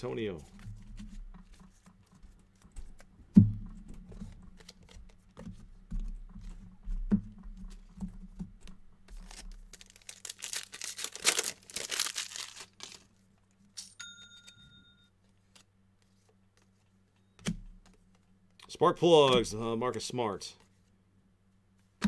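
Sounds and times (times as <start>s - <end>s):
card pack wrapper tearing: 9.2s - 13.1s.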